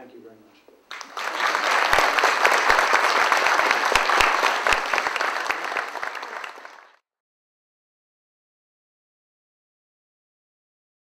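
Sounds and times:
audience clapping: 0.9 - 7.0.

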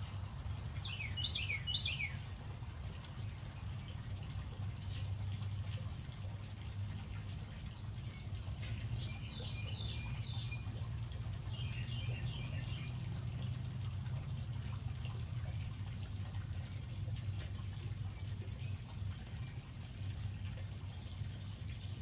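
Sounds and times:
small birds chirping: 0.4 - 5.6, 7.6 - 13.6.

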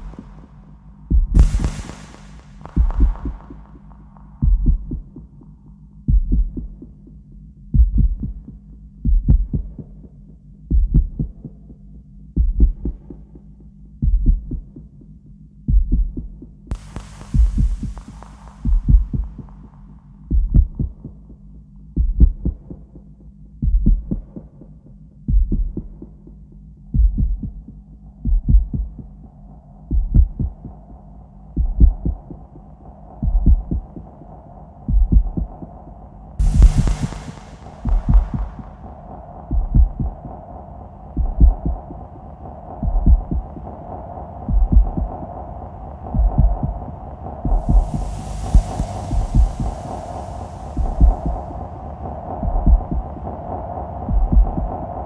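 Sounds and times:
steady drone: 0.0 - 4.4, 16.7 - 19.7, 36.4 - 42.8, 46.7 - 55.0
deep low electronic pulses: 0.0 - 5.2, 16.7 - 21.0, 36.4 - 55.0
deep low thuds: 0.0 - 5.2, 15.7 - 19.6, 36.4 - 38.8, 39.5 - 40.3, 41.2 - 41.9, 42.8 - 43.5, 44.5 - 45.2, 47.5 - 51.6, 52.4 - 53.2, 54.1 - 54.8
burst of hiss: 1.4 - 3.9, 16.7 - 19.5, 36.4 - 39.0, 47.5 - 51.7.

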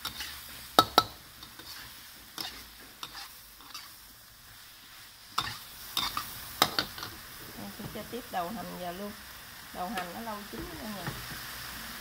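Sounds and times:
metal spatula scraping a wok: 0.0 - 4.0, 4.6 - 7.3
faint sizzle: 0.0 - 12.0.

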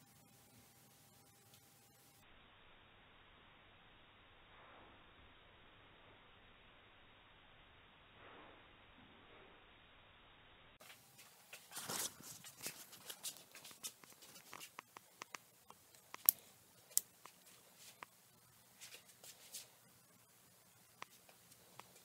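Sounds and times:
sharp clicks and light knocks: 12.6 - 17.4.

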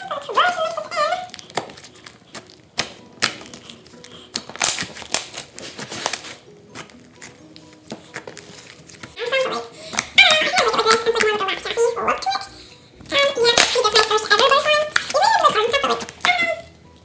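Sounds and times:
slime being kneaded: 0.5 - 9.2, 13.5 - 16.4.

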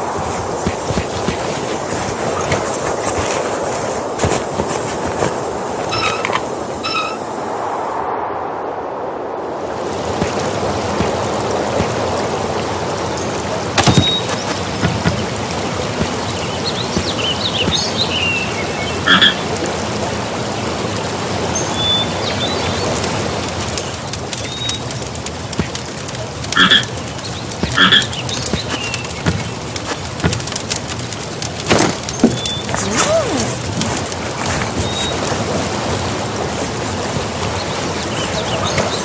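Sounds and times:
rushing hiss: 0.0 - 8.1, 25.6 - 39.0
short high chirps: 5.9 - 7.2
frog croaking: 5.9 - 7.3, 19.0 - 19.5, 26.6 - 26.9, 27.7 - 28.2.

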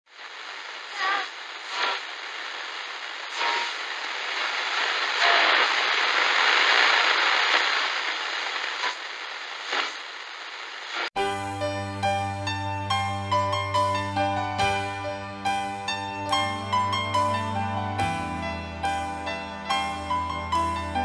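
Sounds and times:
static-like hiss: 0.1 - 21.0
brief crackles: 3.3 - 10.1.

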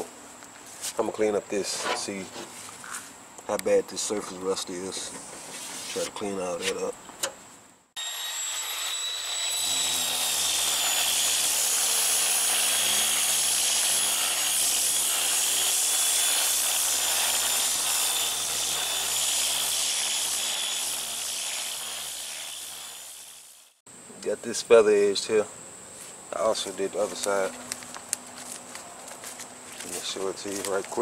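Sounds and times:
power sander on metal: 8.0 - 23.8.

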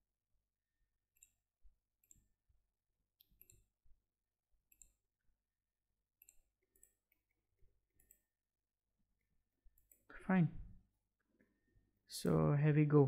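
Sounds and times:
computer mouse clicks: 1.1 - 1.4, 2.0 - 2.3, 3.2 - 3.8, 4.6 - 5.1, 6.2 - 7.4, 8.0 - 8.4, 9.7 - 10.1.

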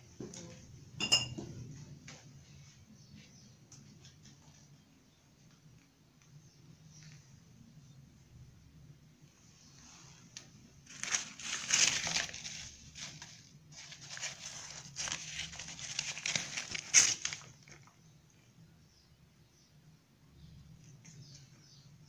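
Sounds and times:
newspaper crinkling: 10.8 - 18.0
sharp paper crackle: 10.8 - 18.0.

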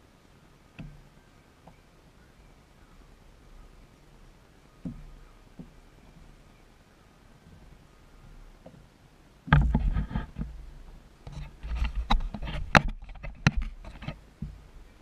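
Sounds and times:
knocks and thumps on boat hull: 4.8 - 6.4, 9.5 - 10.7, 11.3 - 14.6.

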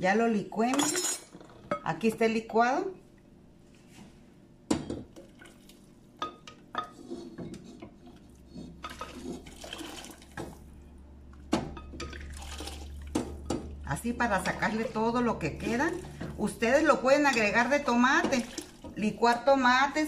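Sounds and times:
puree pouring and splashing: 5.2 - 6.0, 8.2 - 10.6, 12.1 - 13.2, 18.2 - 19.0.

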